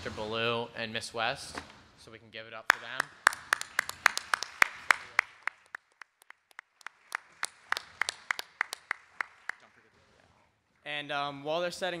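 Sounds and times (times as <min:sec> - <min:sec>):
people clapping: 0:02.7 - 0:10.3.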